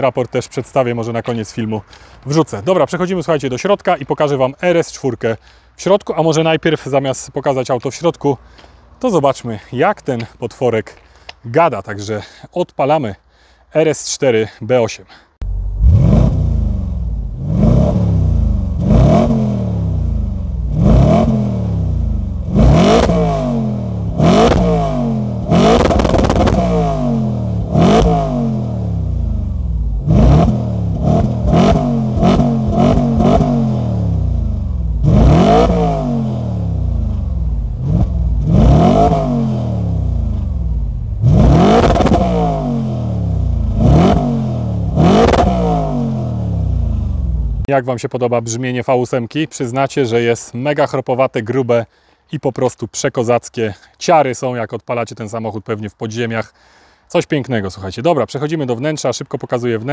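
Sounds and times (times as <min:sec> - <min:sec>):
car engine revving: 0:15.4 - 0:47.7.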